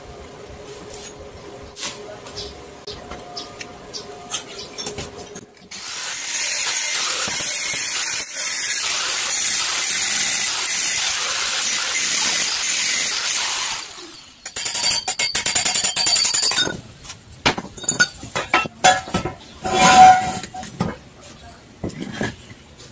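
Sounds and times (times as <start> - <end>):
angle grinder cutting steel: 5.7 - 15.4.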